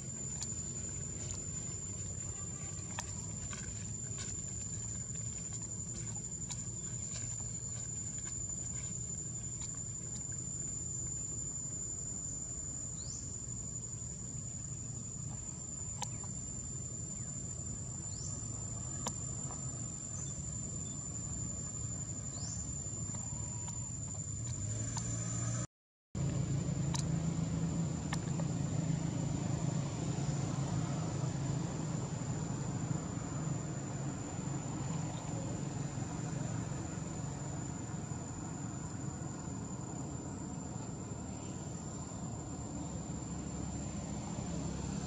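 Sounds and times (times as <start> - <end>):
high-pitched insect drone: 0.0 - 25.7
low steady rumble: 0.0 - 45.0.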